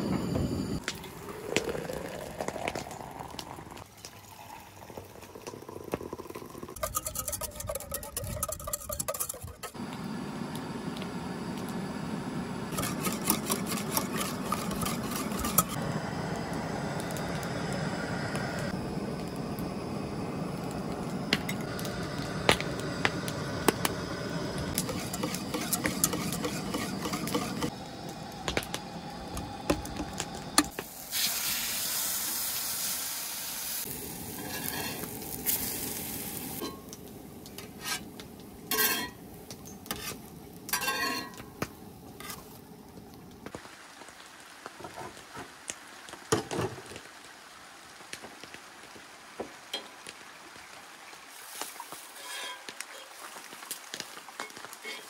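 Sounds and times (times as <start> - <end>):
sizzling: 0.0 - 55.0
whisk scraping metal pot: 6.7 - 9.8, 12.7 - 15.8, 24.8 - 27.7, 52.2 - 52.6
metal tongs clinking on pot: 38.7 - 39.8, 40.7 - 41.4.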